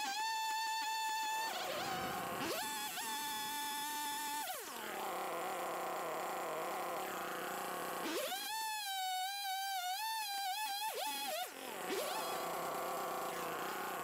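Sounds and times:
chainsaw cutting wood: 0:00.0 - 0:14.0.

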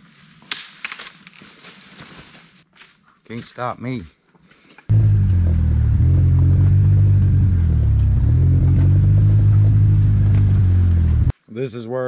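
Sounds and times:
utility vehicle engine running: 0:04.9 - 0:11.3.

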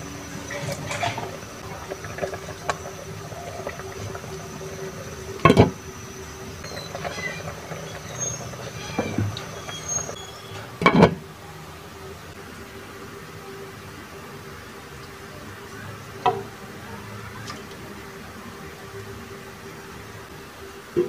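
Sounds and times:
soup simmering in a pot: 0:00.0 - 0:21.0
spatula stirring: 0:06.6 - 0:10.2.

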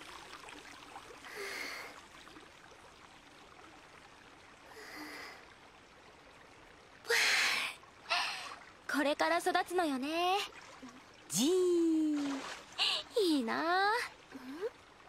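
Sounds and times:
water trickling: 0:00.0 - 0:15.0
person speaking: 0:11.3 - 0:14.0
girl sighing softly: 0:14.3 - 0:14.7.

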